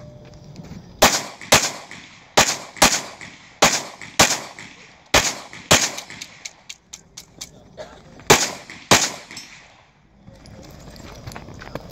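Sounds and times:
pistol shots with echo: 0:01.0 - 0:06.7, 0:08.3 - 0:10.0.

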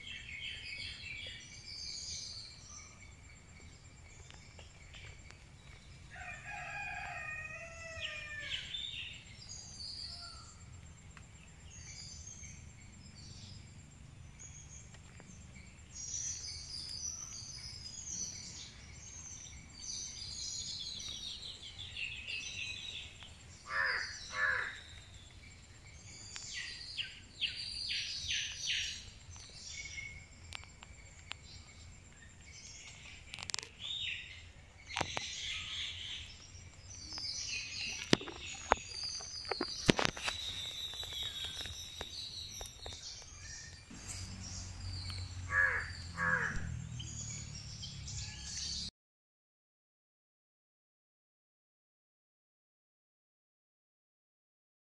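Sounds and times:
birds chirping: 0:00.0 - 0:48.9
rooster crowing: 0:06.1 - 0:08.8, 0:45.5 - 0:46.7.

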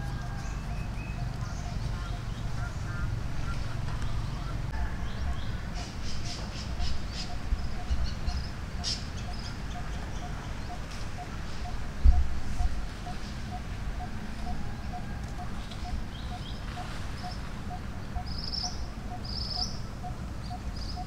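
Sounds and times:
dry leaves crackling underfoot: 0:00.0 - 0:04.3.

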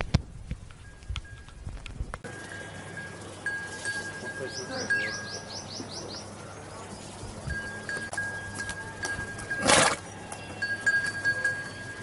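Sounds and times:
thin steady high tone: 0:02.2 - 0:12.0
small bird chirping: 0:03.5 - 0:08.6.

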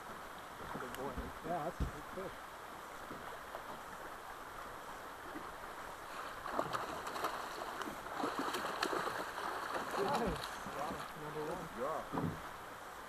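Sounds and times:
river water running: 0:00.0 - 0:13.0
fish splashing in net: 0:06.1 - 0:10.7.

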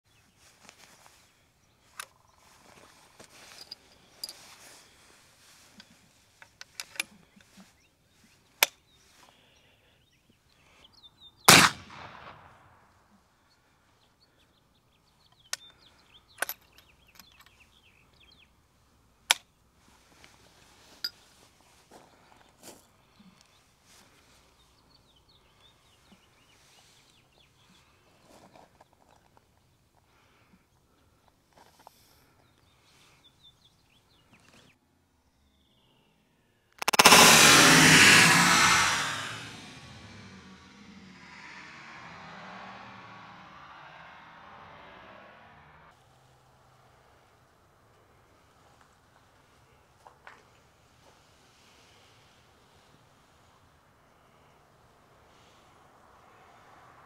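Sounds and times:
metallic clicks of rifle action: 0:05.8 - 0:07.6
rifle shot echoing: 0:11.5 - 0:12.8.

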